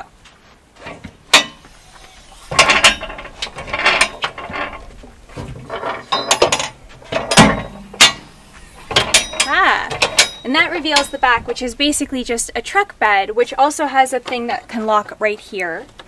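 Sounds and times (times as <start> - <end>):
heavy metal clunk: 0.8 - 12.8
metal rattling and clanking: 0.8 - 13.5.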